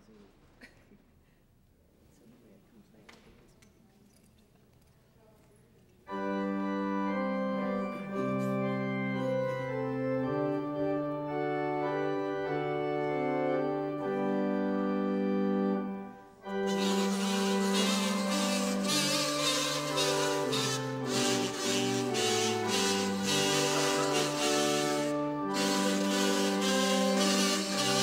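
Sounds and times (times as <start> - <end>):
organ playing held chords: 6.1 - 28.0.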